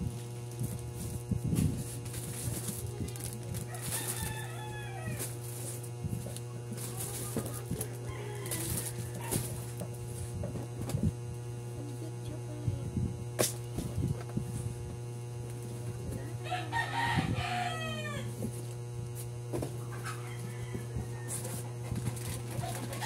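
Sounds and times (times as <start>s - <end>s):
steady low hum: 0.0s - 23.0s
packaged goods knocking and rustling: 0.5s - 4.5s, 5.1s - 11.2s
rooster crowing: 3.6s - 5.8s, 7.6s - 9.8s, 16.2s - 18.5s, 19.9s - 23.0s.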